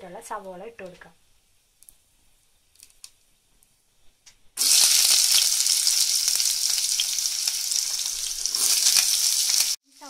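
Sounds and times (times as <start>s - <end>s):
onions sizzling in hot oil: 4.6s - 10.0s.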